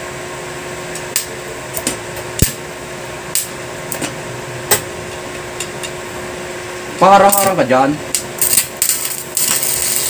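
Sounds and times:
welding machine humming: 0:00.8 - 0:10.0
welding arc snapping: 0:08.2 - 0:10.0.

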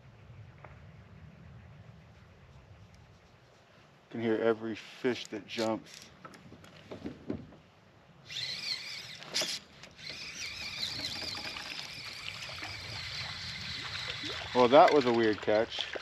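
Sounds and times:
fishing reel whirring: 0:08.2 - 0:15.6.

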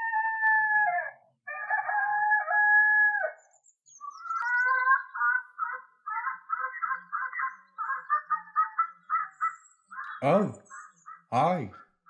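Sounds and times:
rooster crowing: 0:00.0 - 0:03.4.

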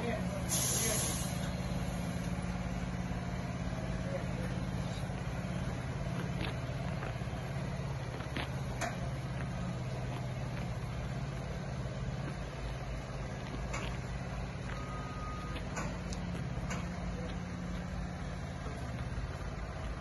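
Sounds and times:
heavy vehicle engine idling: 0:00.0 - 0:20.0
short steady beep: 0:14.7 - 0:15.7.

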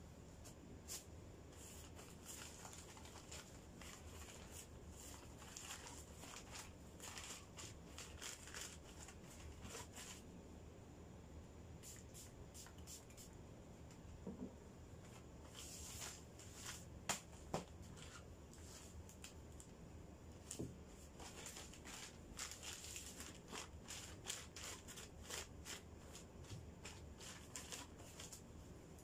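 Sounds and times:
plastic bag crinkling: 0:01.8 - 0:10.2, 0:21.1 - 0:28.4.

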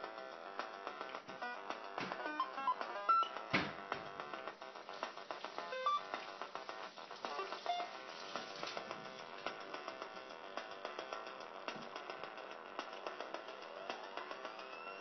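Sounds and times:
synthesizer sequenced pattern: 0:00.0 - 0:15.0.

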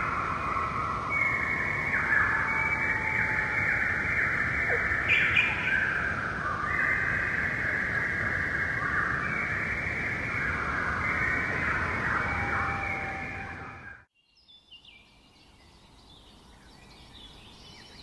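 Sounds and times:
chorus of calling animals: 0:00.0 - 0:14.0.

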